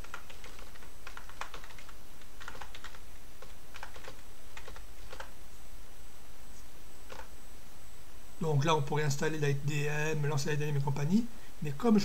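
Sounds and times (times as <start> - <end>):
keyboard typing: 0.0 - 5.3, 7.1 - 7.3.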